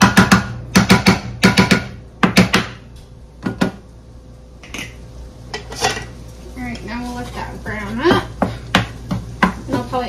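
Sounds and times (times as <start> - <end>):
meat chopper knocking on frying pan: 0.0 - 2.8, 8.1 - 9.7.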